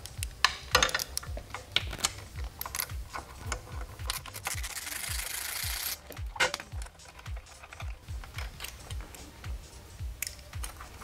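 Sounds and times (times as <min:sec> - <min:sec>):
background music with beat: 0:00.0 - 0:11.0
ratchet wrench clicking: 0:00.1 - 0:09.2
wrench metal clicks and scrapes: 0:00.4 - 0:09.3.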